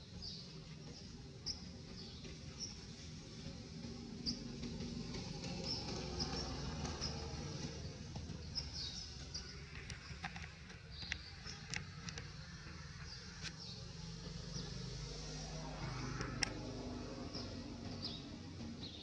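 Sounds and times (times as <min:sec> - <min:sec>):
faint clicks: 0:09.3 - 0:12.8.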